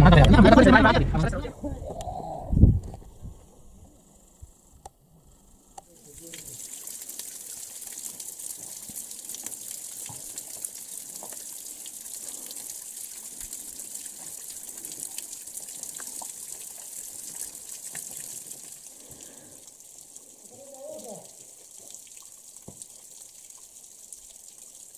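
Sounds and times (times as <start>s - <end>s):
water trickling into a pool: 5.6s - 24.9s.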